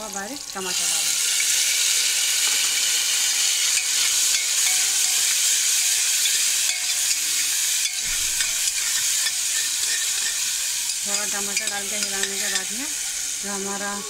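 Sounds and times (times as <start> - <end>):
vegetables frying in hot oil: 0.0 - 14.0
spoon knocking against pot: 7.8 - 12.8.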